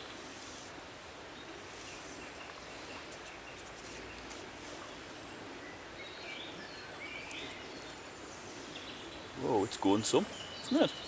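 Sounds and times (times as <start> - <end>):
river running over stones: 0.0 - 11.0
bird chirping: 5.6 - 11.0.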